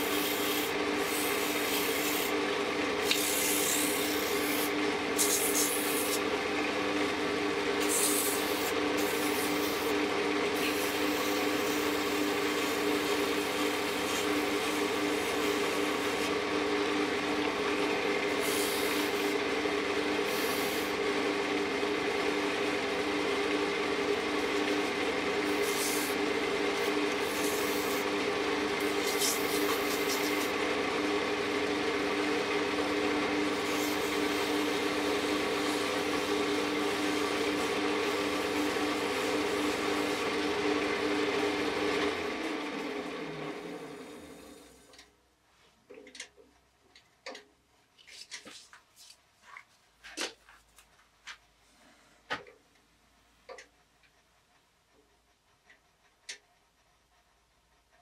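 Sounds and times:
sandpaper rasping on wood: 0.0 - 2.3, 7.8 - 10.0, 28.8 - 30.5
wood lathe motor hum: 0.0 - 44.9.

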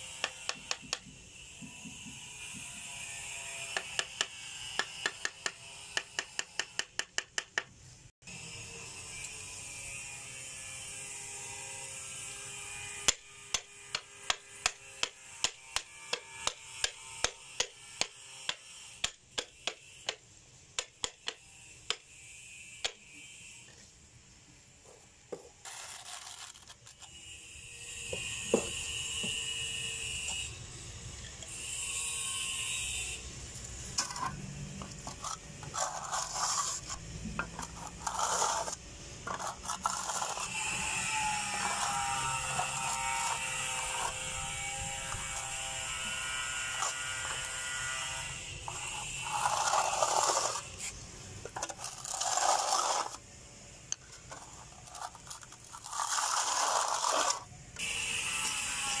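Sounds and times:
trowel scraping on tiles: 24.9 - 27.3, 31.3 - 53.2, 54.0 - 59.0.

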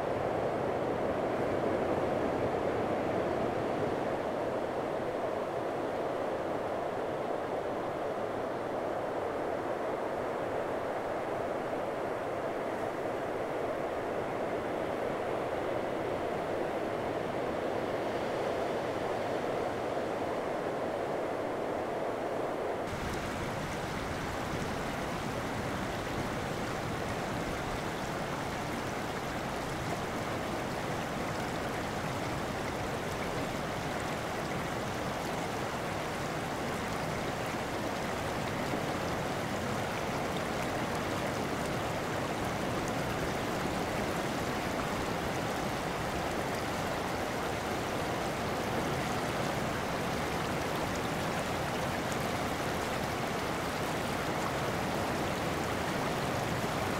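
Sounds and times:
creek flowing over gravel: 22.9 - 56.9.

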